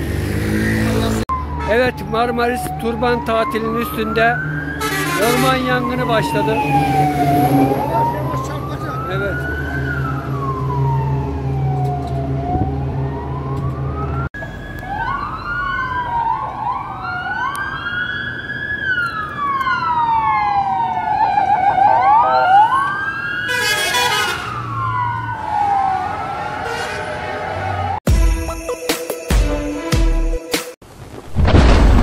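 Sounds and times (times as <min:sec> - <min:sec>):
fire engine sirens wailing: 0:00.0 - 0:28.0
loud horn blast: 0:04.8 - 0:05.8, 0:23.5 - 0:24.6, 0:26.5 - 0:27.9.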